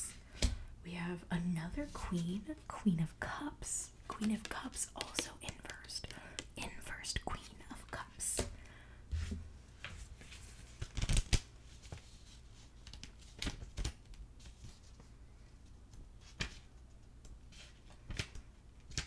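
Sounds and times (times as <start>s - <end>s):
cards tapping and flicking: 4.1s - 6.6s.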